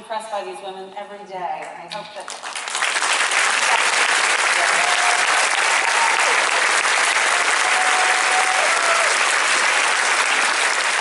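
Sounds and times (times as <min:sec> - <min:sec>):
large audience applauding: 0:02.3 - 0:11.0.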